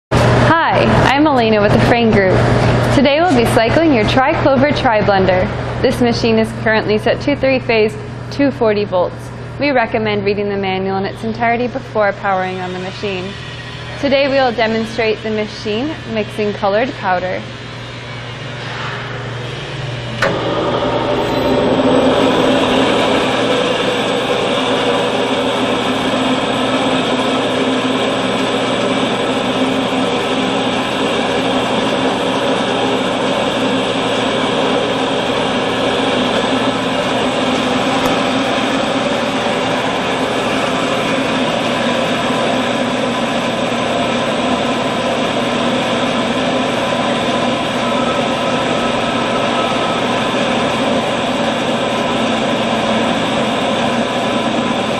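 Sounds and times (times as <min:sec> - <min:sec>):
mixer and pump machine hum: 0:00.1 - 0:54.9
water gushing into metal hopper: 0:20.2 - 0:54.9.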